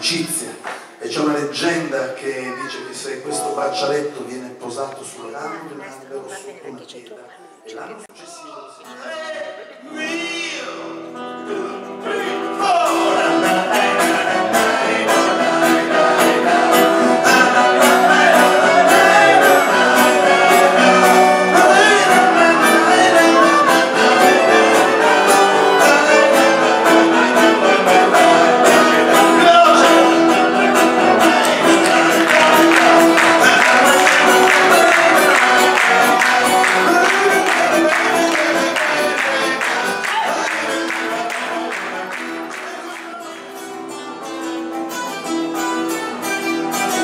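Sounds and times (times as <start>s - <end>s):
acoustic band music: 0.0s - 6.6s, 7.9s - 47.0s
accordion: 11.2s - 47.0s.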